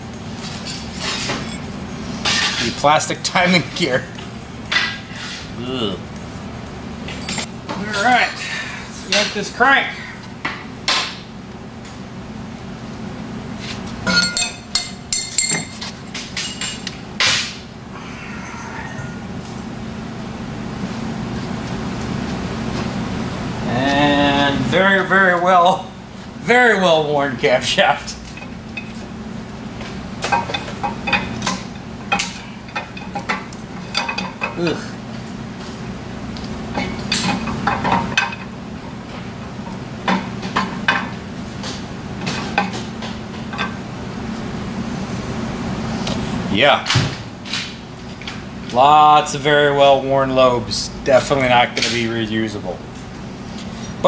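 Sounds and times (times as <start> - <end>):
steel engine parts clanking: 0.0 - 8.3, 14.0 - 17.6, 29.8 - 35.2, 36.7 - 43.8
steady low hum: 0.0 - 54.0
metal engine parts clinking: 6.2 - 8.2, 14.0 - 17.6, 36.7 - 38.9.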